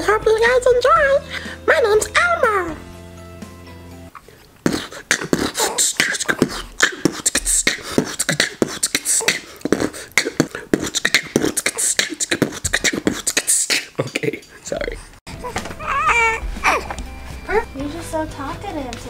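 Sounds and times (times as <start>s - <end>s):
man beatboxing: 4.6s - 14.6s.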